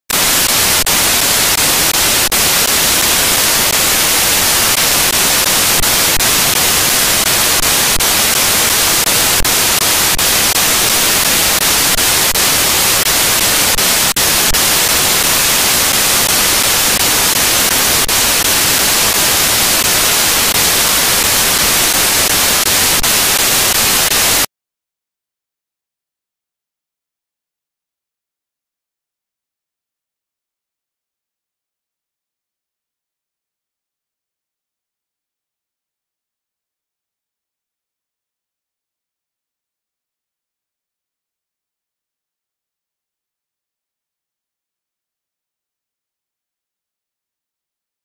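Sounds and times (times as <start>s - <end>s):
static hiss: 0.1s - 24.5s.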